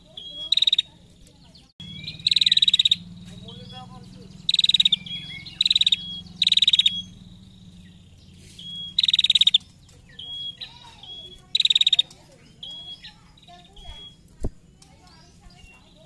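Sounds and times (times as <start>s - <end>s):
bird buzzy trill call: 0.0s - 1.0s, 1.8s - 14.4s
thin whistled bird notes: 0.0s - 16.0s.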